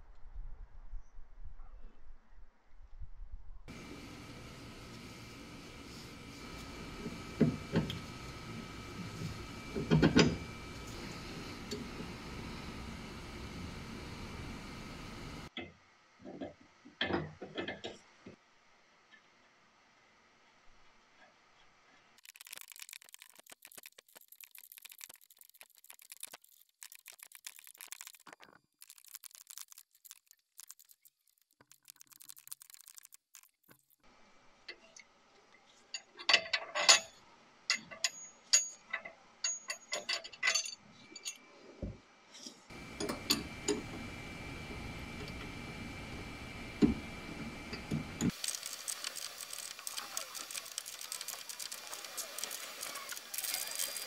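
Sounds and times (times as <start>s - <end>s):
metal tools knocking and clinking: 36.1s - 41.4s.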